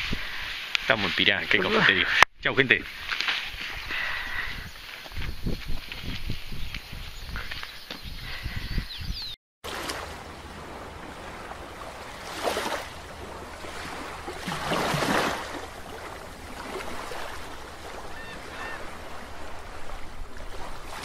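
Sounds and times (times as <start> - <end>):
underwater watery rush: 9.6 - 21.0.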